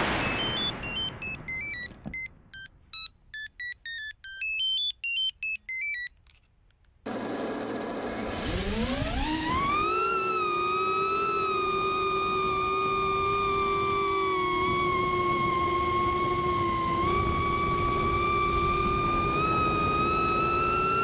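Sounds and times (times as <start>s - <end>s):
short electronic beeps: 0.0s - 6.2s
quadcopter motors whining: 7.1s - 21.0s.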